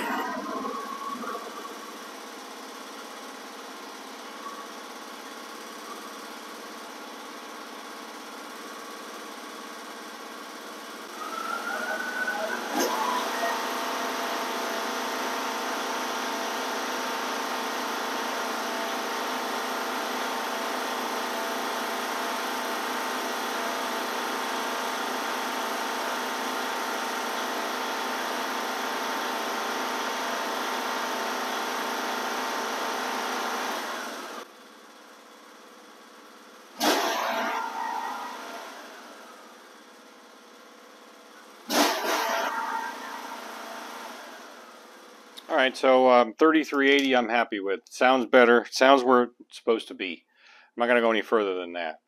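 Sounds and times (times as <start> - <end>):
mower engine revving: 0.0 - 6.9, 9.1 - 34.5, 36.7 - 39.7, 41.0 - 45.6.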